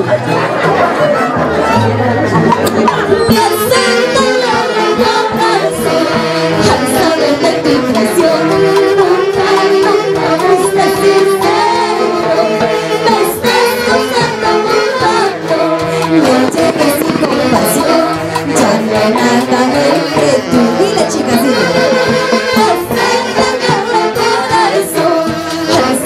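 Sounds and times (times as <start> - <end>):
drums: 0.0 - 26.0
saxophones playing lead: 1.0 - 26.0
woman singing: 3.0 - 26.0.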